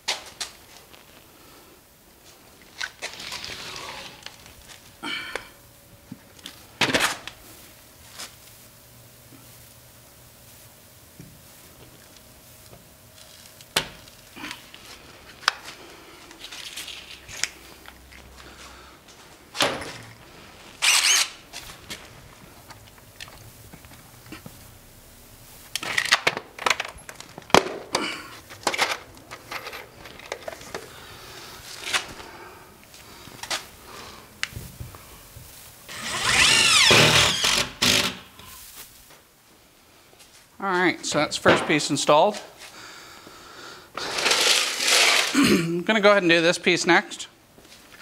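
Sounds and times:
screw gun motor whirring: 20.8s - 21.4s, 35.9s - 38.2s
handling clicks and knocks: 25.8s - 30.9s.

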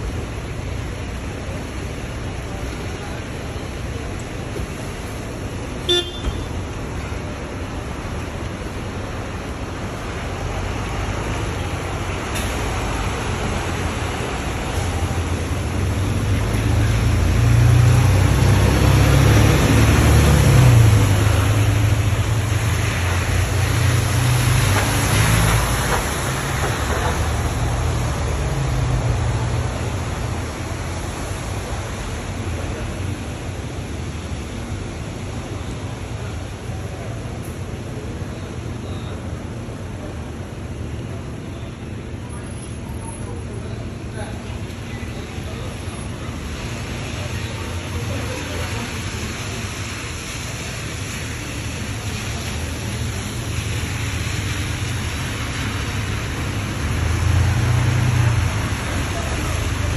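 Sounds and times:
tyre hiss on wet road: 0.1s - 40.4s, 42.4s - 59.9s
bus horn toot: 5.9s - 6.5s
bus engine driving past: 6.5s - 59.9s.

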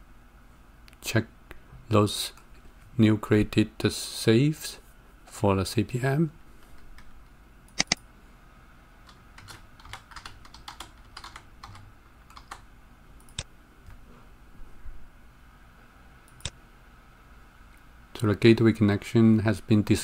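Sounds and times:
typing on computer keyboard: 9.1s - 12.6s.

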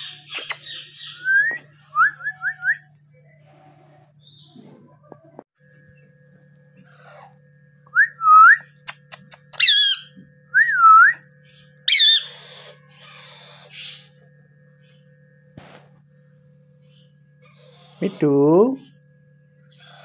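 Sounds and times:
harsh parakeet calls: 0.0s - 1.4s, 8.8s - 10.2s, 11.4s - 14.2s, 16.8s - 18.4s, 19.7s - 20.0s
parakeets whistling: 0.0s - 2.8s, 6.8s - 15.0s
faint steady hum: 0.0s - 20.0s.

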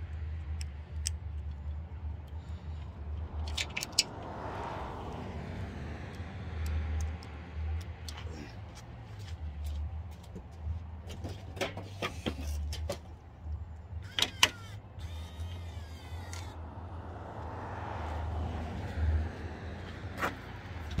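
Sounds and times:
sharp clicks: 6.1s - 8.2s
electric gear-motor whir: 14.0s - 16.6s.

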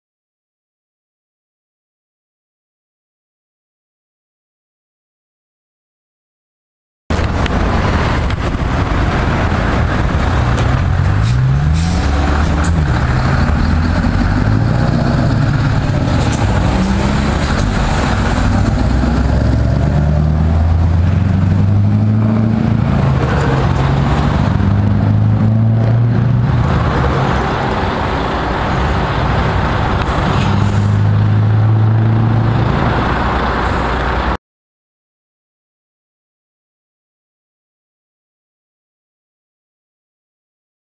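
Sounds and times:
diesel truck engine accelerating: 7.1s - 34.4s.

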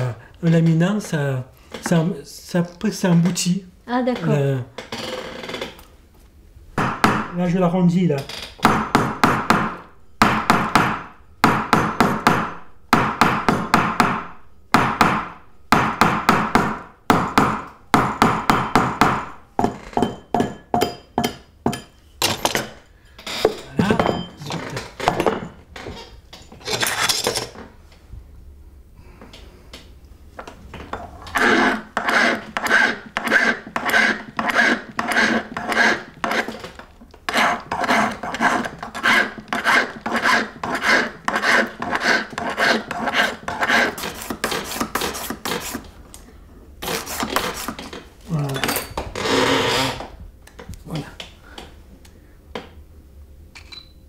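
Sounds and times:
hand file rasping on ring: 31.4s - 36.6s, 37.3s - 45.8s.

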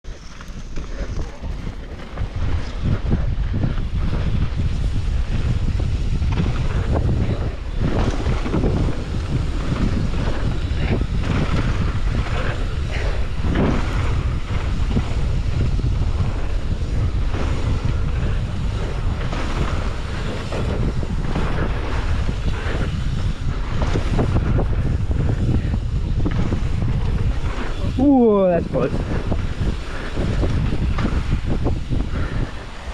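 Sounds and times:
bike rattling over bumps: 0.1s - 32.9s
wind buffeting microphone: 0.1s - 32.9s.

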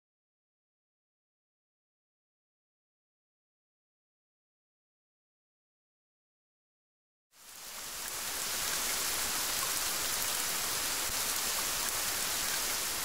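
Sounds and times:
steady rain-like hiss: 7.4s - 13.0s.

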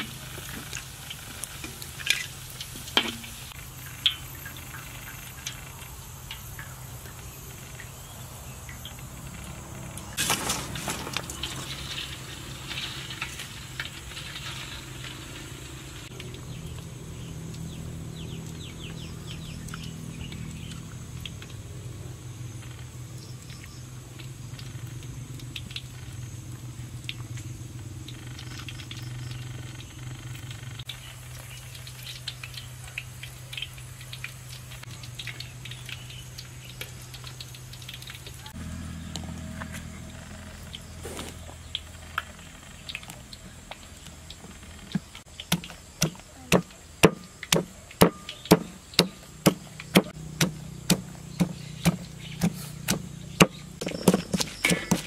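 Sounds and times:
pestle pounding in wooden mortar: 45.0s - 55.0s.

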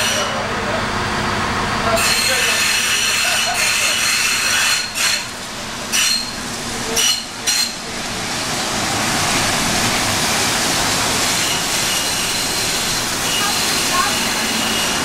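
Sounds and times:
steam hissing: 1.9s - 15.0s
high metallic squeals: 5.9s - 6.4s, 13.3s - 15.0s.

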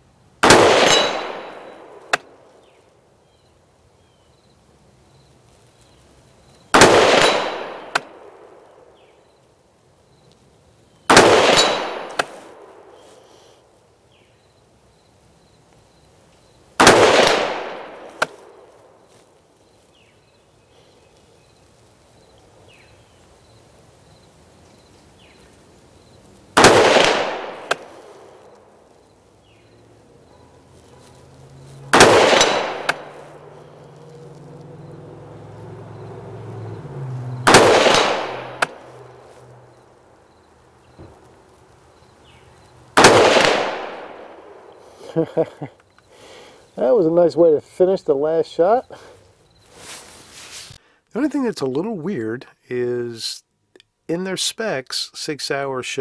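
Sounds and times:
rifle shots echoing: 0.4s - 2.4s, 6.7s - 8.6s, 11.1s - 13.0s, 16.8s - 18.6s, 26.6s - 28.4s, 31.9s - 33.8s, 37.4s - 39.2s, 43.0s - 44.8s
steel target ringing: 0.8s - 1.8s, 7.2s - 8.0s, 11.5s - 12.2s.

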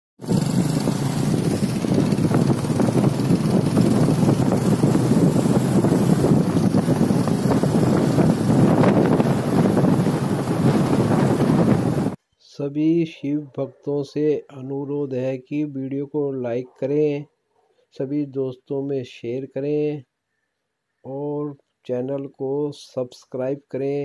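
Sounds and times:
motorcycle engine running: 0.2s - 12.2s
wind buffeting microphone: 0.2s - 12.2s.

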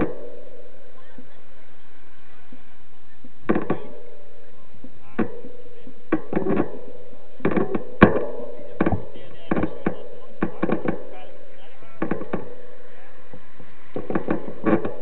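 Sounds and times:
bike frame knocks and clicks: 0.0s - 0.8s, 3.5s - 4.3s, 5.1s - 15.0s
bike rolling noise: 0.0s - 15.0s.

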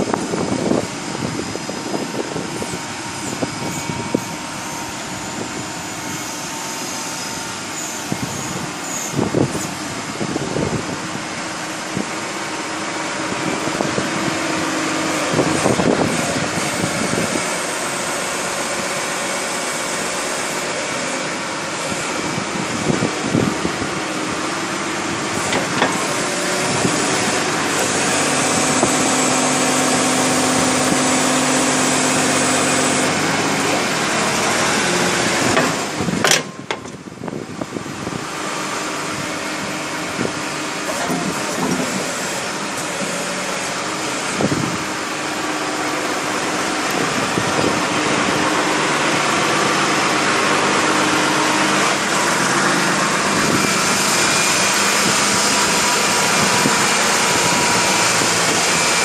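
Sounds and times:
diesel engine idling: 0.0s - 59.0s
knocks and clunks: 35.5s - 37.0s.

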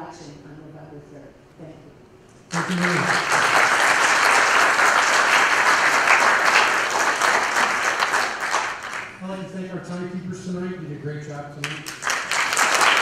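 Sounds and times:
audience applauding: 2.5s - 9.2s, 11.6s - 13.0s.

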